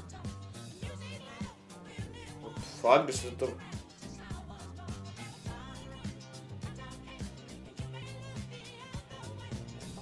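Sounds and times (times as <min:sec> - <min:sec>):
upbeat dance-pop music: 0:00.0 - 0:10.0.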